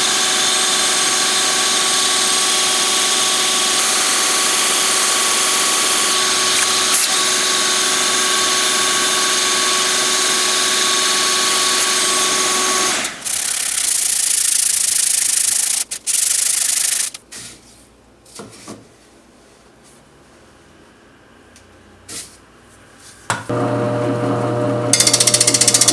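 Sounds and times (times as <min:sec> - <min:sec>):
lathe motor whine: 0:00.0 - 0:14.0, 0:23.5 - 0:25.9
sandpaper sanding hiss: 0:13.3 - 0:17.2.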